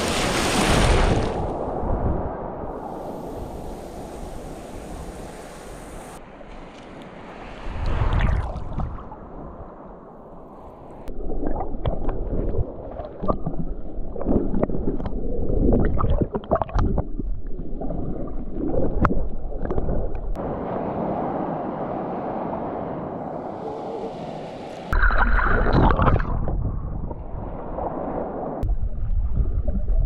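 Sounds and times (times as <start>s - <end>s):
sea water sloshing and splashing: 0.0s - 1.6s, 6.4s - 9.8s, 10.6s - 20.4s, 24.7s - 28.6s.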